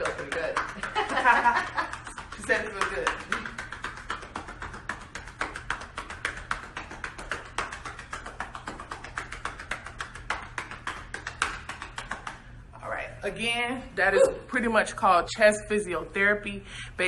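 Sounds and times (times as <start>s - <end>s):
hands patting a back: 0.0s - 12.4s.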